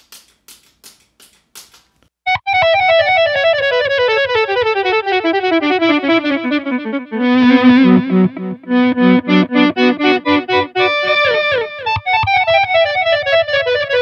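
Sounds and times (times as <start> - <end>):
electric guitar lead run with delay: 2.4 - 12.0.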